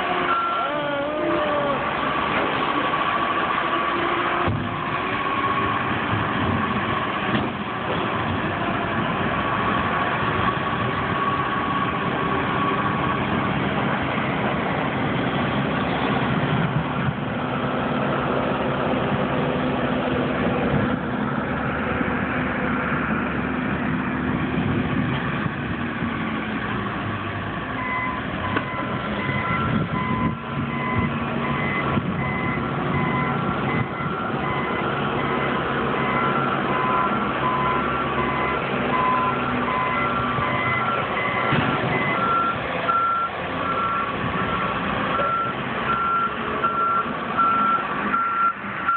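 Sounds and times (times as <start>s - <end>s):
diesel engines running: 0.0s - 48.9s
reversing alarm beeping: 0.2s - 0.8s, 27.8s - 48.9s.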